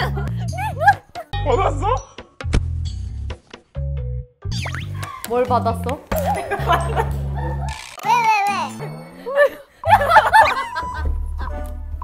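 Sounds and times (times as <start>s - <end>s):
music with bass line: 0.0s - 7.7s.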